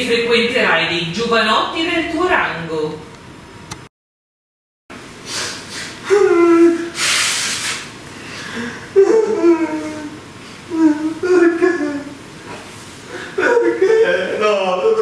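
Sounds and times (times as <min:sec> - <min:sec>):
woman sobbing: 0:06.1 - 0:06.9, 0:08.6 - 0:12.2, 0:13.1 - 0:15.0.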